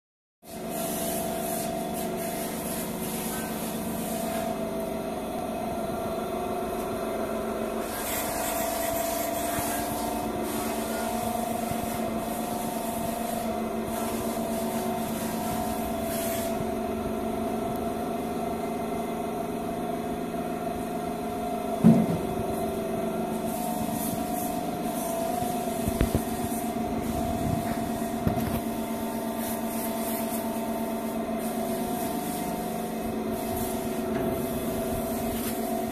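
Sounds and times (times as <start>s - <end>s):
electric motor humming: 23.2s - 35.9s.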